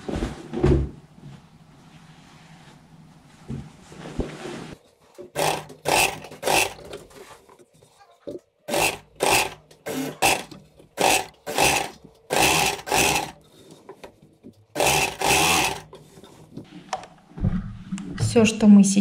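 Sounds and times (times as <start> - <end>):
sewing machine stitching: 5.3 - 7.3, 8.7 - 13.5, 14.7 - 16.4.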